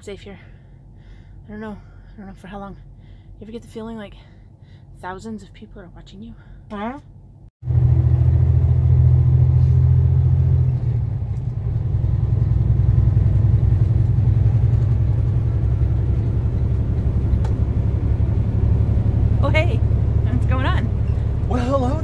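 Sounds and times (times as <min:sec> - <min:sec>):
truck engine drone in cab: 0:07.6 - 0:22.0.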